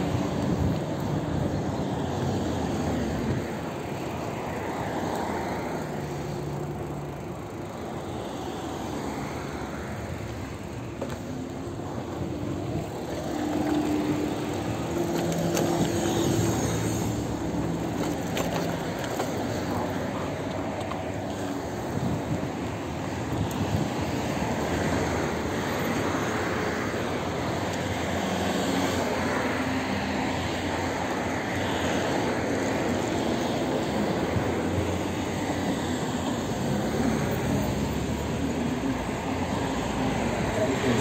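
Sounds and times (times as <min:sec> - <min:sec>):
motor traffic passing: 0:00.0 - 0:41.0
road noise: 0:00.0 - 0:41.0
wind on microphone: 0:21.7 - 0:25.1.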